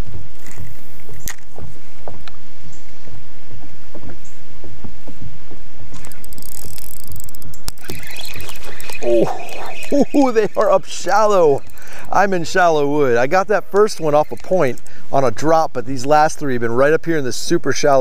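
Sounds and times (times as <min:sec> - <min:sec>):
wind on microphone: 0:00.0 - 0:14.8
fishing reel clicks: 0:05.9 - 0:15.0.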